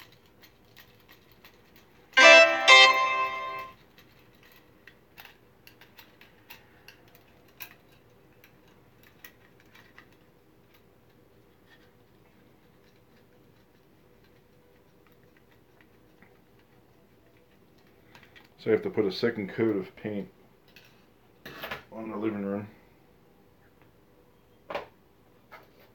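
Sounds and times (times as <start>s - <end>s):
brief musical tone: 2.2s - 3.7s.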